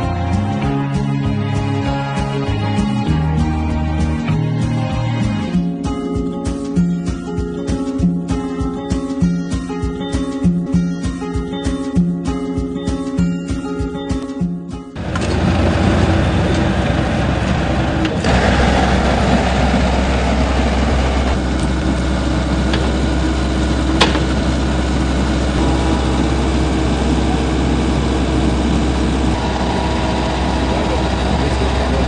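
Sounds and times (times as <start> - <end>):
excavator diesel engine running: 15.0 - 32.0.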